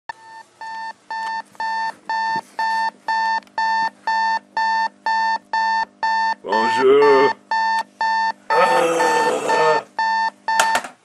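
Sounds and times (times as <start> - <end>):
alarm clock beeping: 0.2 - 10.8.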